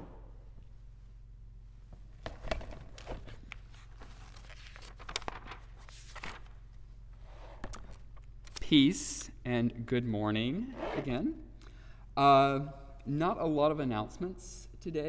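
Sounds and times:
steady low hum: 0.0 - 15.0
paper pages rustling: 2.3 - 6.6.

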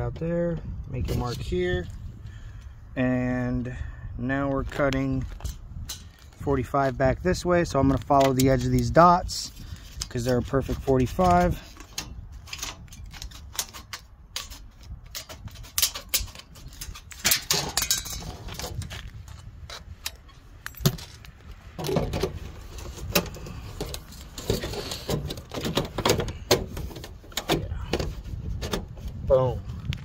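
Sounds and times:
light metal piece rattling: 11.2 - 27.5.

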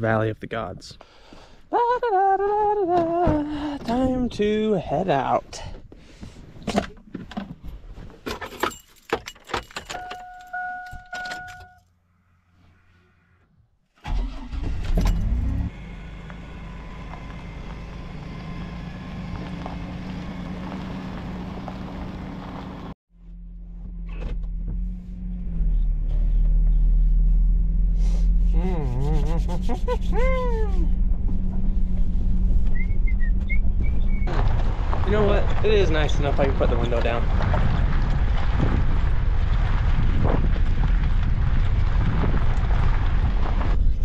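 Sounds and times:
van engine starting: 13.9 - 20.8
engine running while driving: 14.9 - 39.9.

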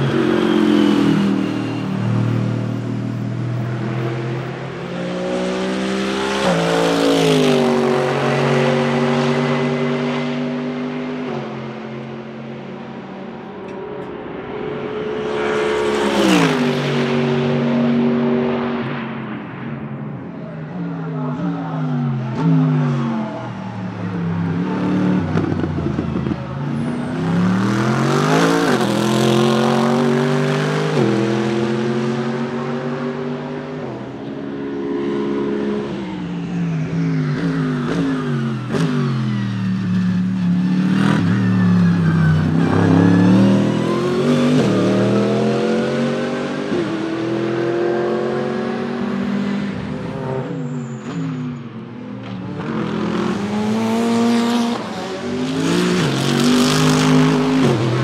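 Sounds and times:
race car engines at full throttle: 0.0 - 58.0.

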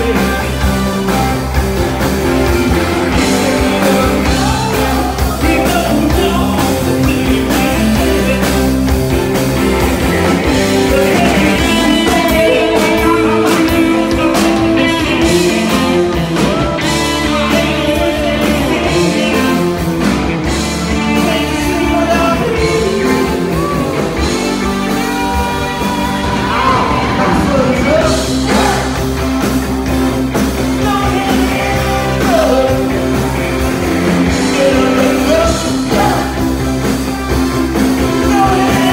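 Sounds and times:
live rock band playing: 0.0 - 38.9
person singing into microphone: 3.1 - 8.5, 10.8 - 19.8, 20.8 - 24.4, 25.3 - 29.0, 30.8 - 33.0, 34.3 - 36.4, 38.1 - 38.9.

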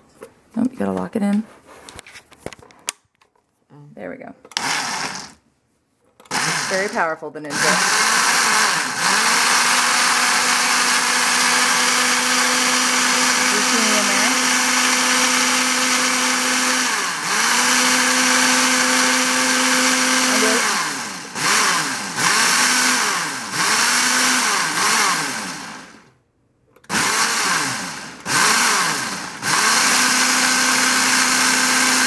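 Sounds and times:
blender motor running: 4.6 - 5.4, 6.3 - 26.1, 26.9 - 32.0.

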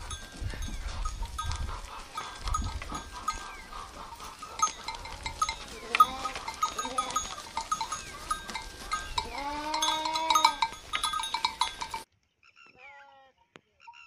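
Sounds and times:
sheep bells clinking: 0.0 - 12.1
sheep bleating: 5.5 - 7.4, 9.2 - 10.7.

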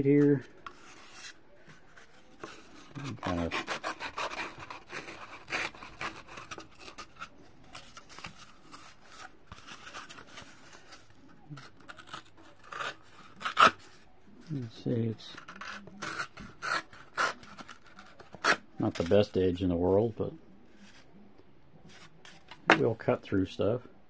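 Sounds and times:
knife sawing cardboard tube: 2.4 - 7.3, 11.6 - 13.8, 15.4 - 18.6.

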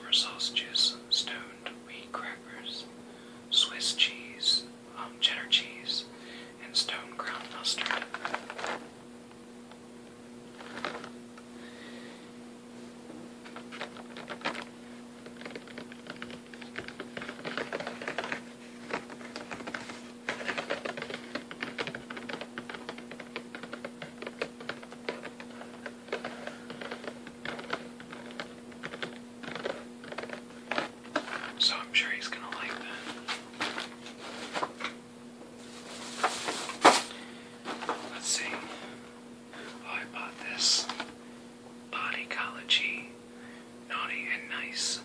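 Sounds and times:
faint steady hum: 0.0 - 45.0
fingernails tapping on cardboard: 20.3 - 25.4.

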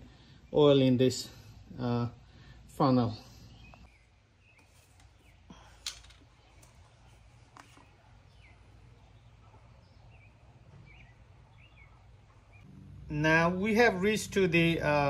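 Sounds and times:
faint bird chirps: 3.1 - 13.1.

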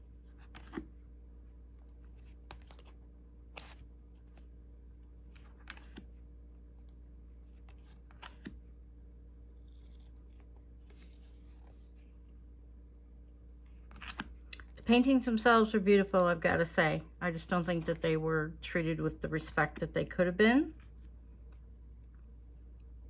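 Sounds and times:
faint low hum: 0.0 - 23.0
cards sliding rustle: 0.2 - 1.0, 1.7 - 4.5, 5.2 - 6.2, 6.8 - 8.7, 9.4 - 12.1, 13.7 - 14.4
card edges snapping: 0.4 - 0.9, 5.4 - 6.1, 7.7 - 8.6, 13.9 - 14.6.

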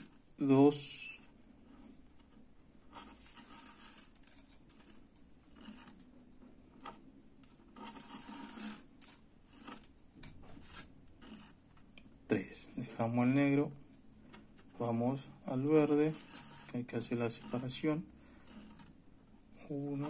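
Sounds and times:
cord rustling while knotting: 0.0 - 11.9.

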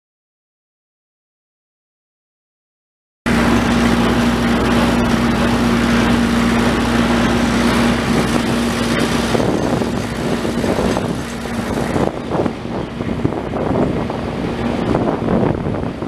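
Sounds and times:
locomotive engine running: 3.3 - 16.0
rumble of moving train: 3.3 - 16.0
steady hum: 3.3 - 16.0.

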